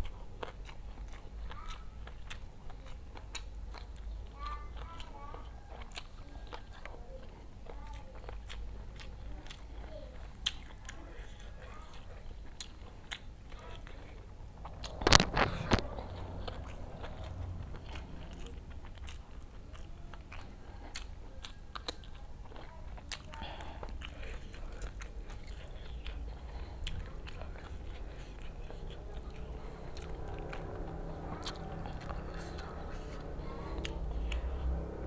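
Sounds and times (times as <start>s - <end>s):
close chewing: 0.0s - 35.0s.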